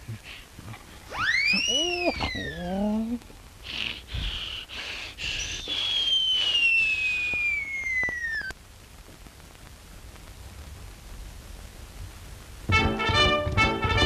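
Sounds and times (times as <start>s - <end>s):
faint soundtrack hiss: 0.0s - 14.0s
cartoon whistle gliding down: 1.1s - 2.6s, 5.4s - 8.5s.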